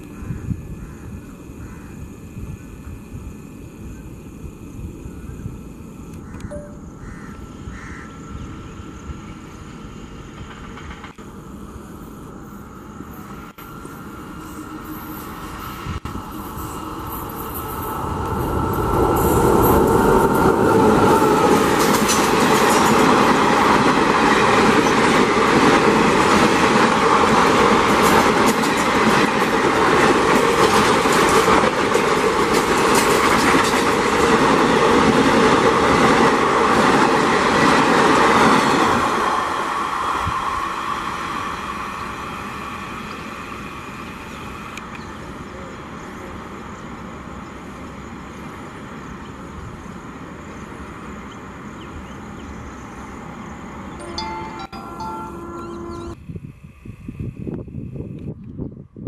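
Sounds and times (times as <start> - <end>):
train wheels clattering over rails: 10.3 - 11.2, 17.2 - 39.8.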